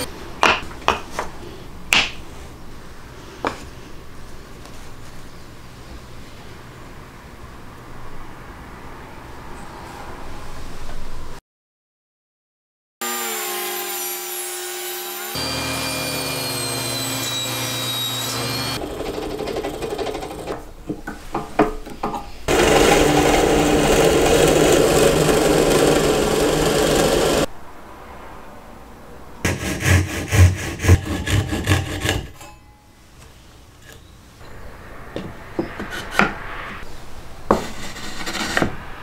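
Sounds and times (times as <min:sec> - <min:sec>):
power tool cutting or sanding: 0:13.0 - 0:19.8, 0:22.5 - 0:27.5, 0:29.5 - 0:32.3
scraping strokes on wood: 0:22.2 - 0:27.5, 0:29.4 - 0:32.6.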